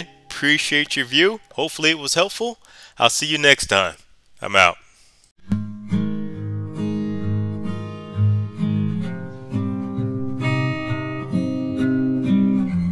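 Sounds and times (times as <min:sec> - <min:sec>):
acoustic guitar plucking melody: 0:05.4 - 0:12.9.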